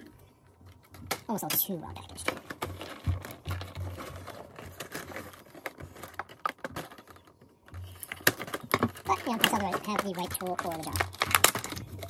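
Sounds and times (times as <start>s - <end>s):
plastic crinkling and crackling: 0.0s - 12.0s
scissors snipping plastic: 7.8s - 12.0s.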